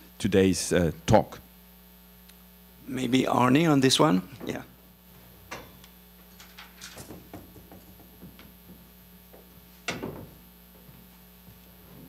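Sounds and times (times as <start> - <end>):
electrical hum: 0.0 - 12.0
faint knocks and rustles: 5.2 - 12.0.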